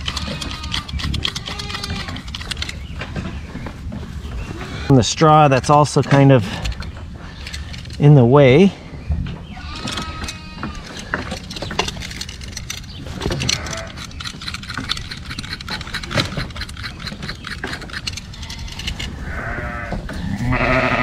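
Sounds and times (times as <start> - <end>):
sheep bleating: 19.3 - 21.0.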